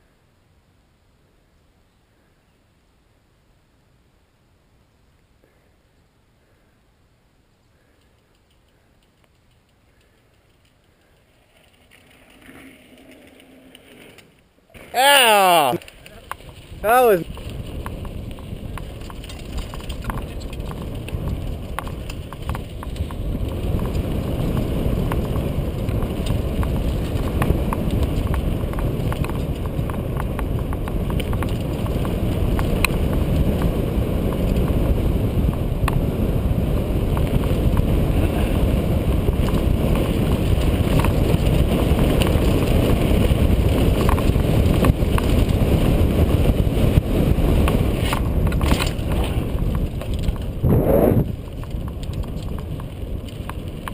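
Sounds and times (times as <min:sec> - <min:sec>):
bike tyres rolling over dirt: 0:07.7 - 0:53.9
bike clicking: 0:07.8 - 0:53.9
wind buffeting microphone: 0:15.0 - 0:53.9.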